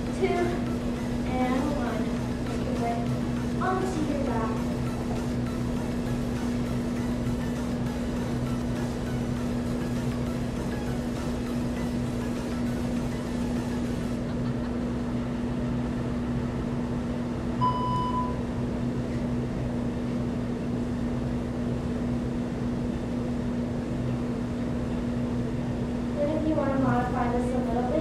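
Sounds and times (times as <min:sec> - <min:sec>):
electrical hum: 0:00.0 - 0:28.0
short electronic beep: 0:17.6 - 0:18.4.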